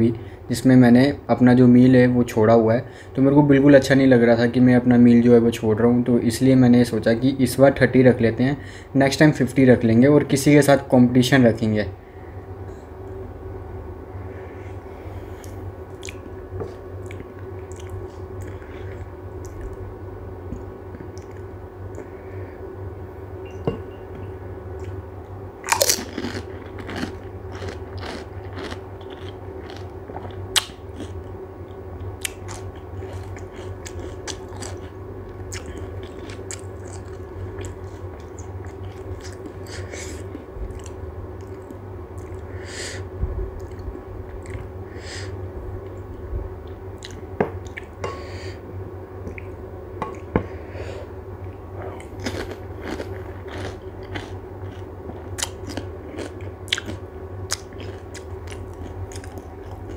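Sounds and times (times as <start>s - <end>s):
steady low hum: 0.0s - 59.9s
chewing: 15.4s - 16.3s, 17.0s - 19.8s, 25.6s - 42.5s, 43.6s - 44.7s, 51.4s - 59.9s
crisp shells crunching: 25.7s - 29.9s.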